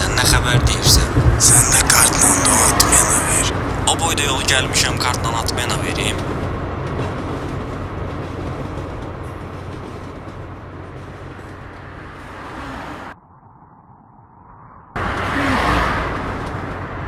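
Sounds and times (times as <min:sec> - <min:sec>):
loud rush of noise: 0:00.0 - 0:06.2
roadside rumble and hiss: 0:00.0 - 0:08.4
car driving past: 0:11.5 - 0:13.2, 0:15.0 - 0:17.0.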